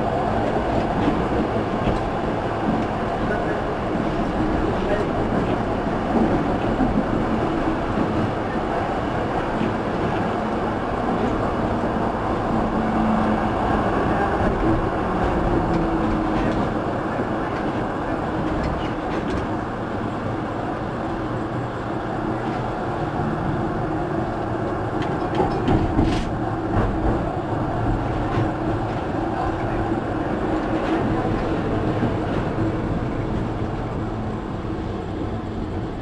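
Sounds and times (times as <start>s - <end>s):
tram wheels rumbling on rails: 0.0s - 36.0s.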